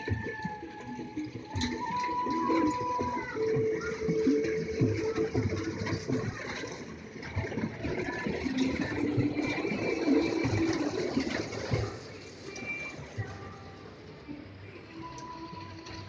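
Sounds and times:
kiddie train running on track: 0.0 - 13.5
fairground crowd din: 0.0 - 16.0.

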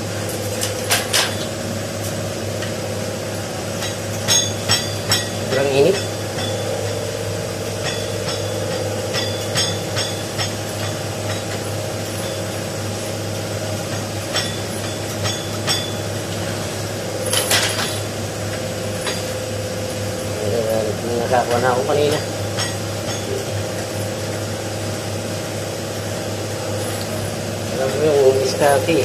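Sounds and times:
steady hum: 0.0 - 29.0
hand tools clinking on metal: 17.2 - 18.0.

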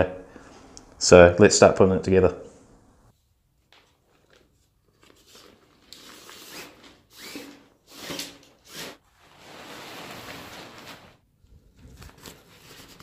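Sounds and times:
tent fabric rustling: 9.0 - 11.2.

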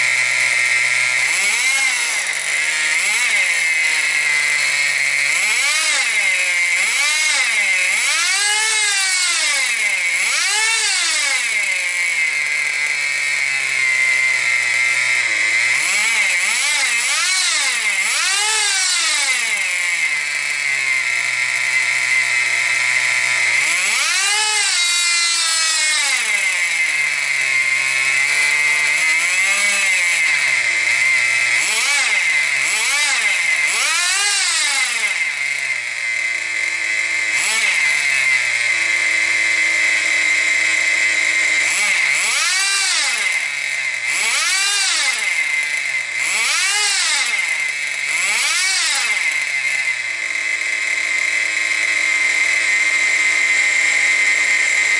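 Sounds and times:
model car engine idling: 12.6 - 15.8, 38.4 - 41.6, 49.3 - 54.9.

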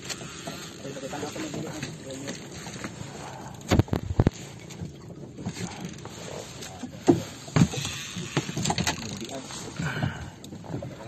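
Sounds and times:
water noise: 0.0 - 11.0
wind: 0.0 - 11.0
sharp knocks on wooden boat: 7.0 - 8.8.

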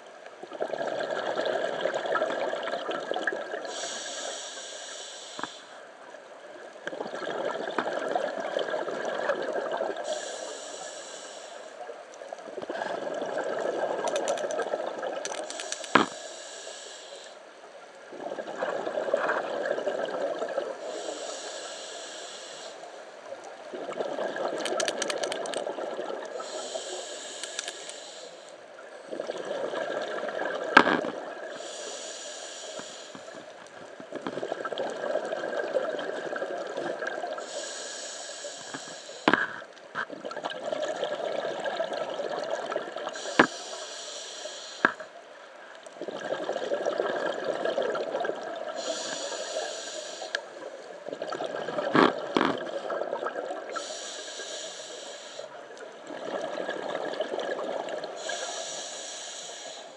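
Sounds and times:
exhaled bubbles rushing: 0.5 - 3.7, 6.9 - 10.0, 12.6 - 15.3, 18.1 - 20.8, 23.7 - 26.4, 29.1 - 31.5, 34.1 - 37.4, 40.2 - 43.2, 46.0 - 48.8, 51.0 - 53.8, 56.0 - 58.2
diver breathing through regulator: 3.7 - 5.8, 10.0 - 11.8, 15.3 - 17.4, 20.8 - 23.0, 26.3 - 28.6, 31.0 - 33.5, 37.4 - 39.7, 43.1 - 45.2, 48.7 - 50.6, 53.7 - 55.6, 58.1 - 59.9
sharp clicks: 14.0 - 14.6, 15.3 - 16.2, 24.6 - 25.7, 27.4 - 28.0.

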